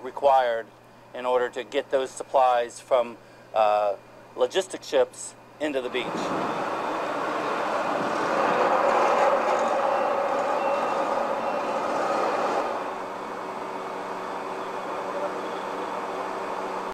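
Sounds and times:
engine drone: 5.6s - 16.9s.

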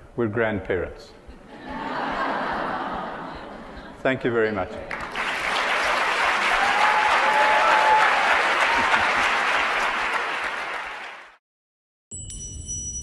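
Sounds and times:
audience applauding: 4.8s - 11.4s.

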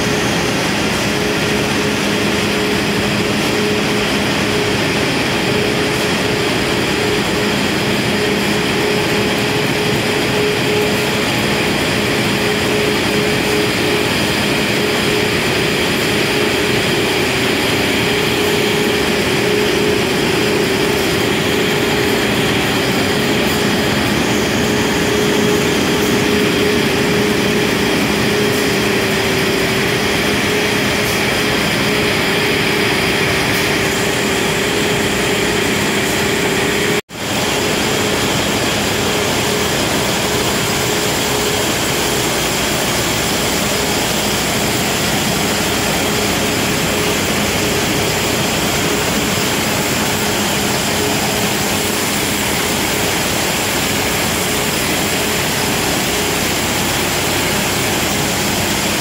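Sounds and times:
constant hum: 0.0s - 59.0s
industrial machinery din: 0.0s - 59.0s.

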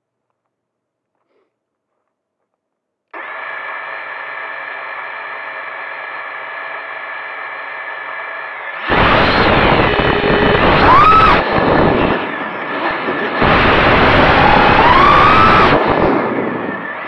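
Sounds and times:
quadcopter motors whining: 3.2s - 17.0s.

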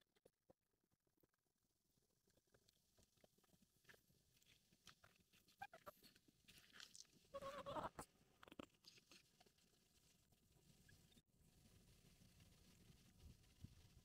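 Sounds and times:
faint clicks and crunches: 2.2s - 10.2s.

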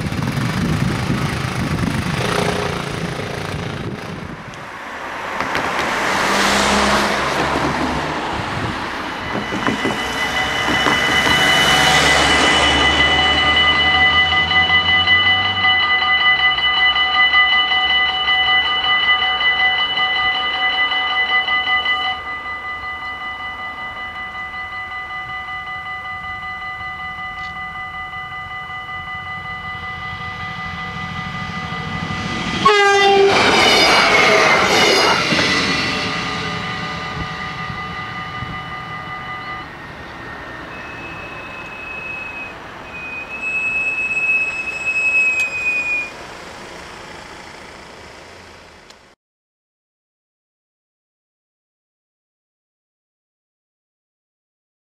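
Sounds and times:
passing train: 0.0s - 49.2s
level-crossing bells ringing: 6.3s - 47.6s
high thin whine: 29.0s - 47.0s.

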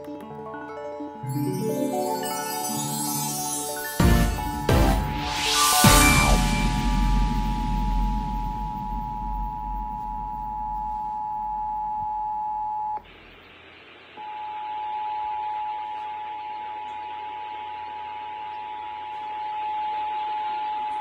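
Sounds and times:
two-tone alert signal: 4.0s - 11.4s.

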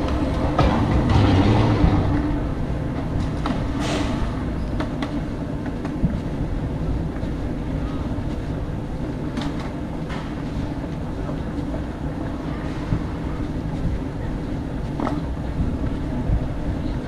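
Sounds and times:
suitcase rolling on hard floor: 0.0s - 3.8s
busy hall background noise: 0.0s - 17.0s.

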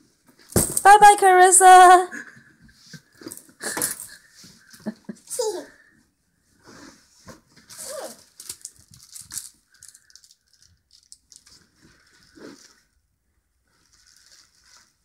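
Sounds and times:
fabric rustling and crinkling: 6.5s - 15.0s.

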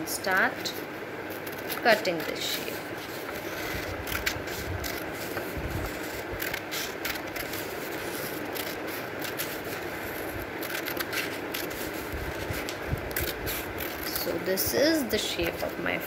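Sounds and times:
steady background hiss: 0.0s - 16.0s
scissors snipping paper: 1.3s - 14.3s
paper rustling: 1.4s - 14.2s.

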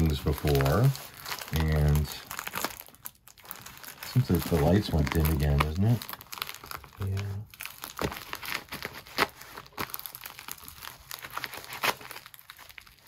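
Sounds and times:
plastic mailer crinkling: 0.0s - 13.0s.

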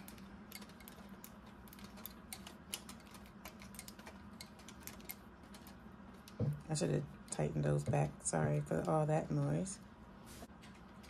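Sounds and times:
tripod parts clicking and rattling: 0.0s - 6.4s.

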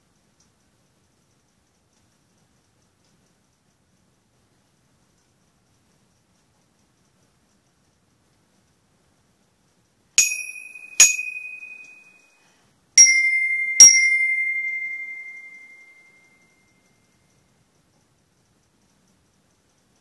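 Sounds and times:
glockenspiel notes ringing: 10.2s - 12.2s, 13.0s - 16.5s.

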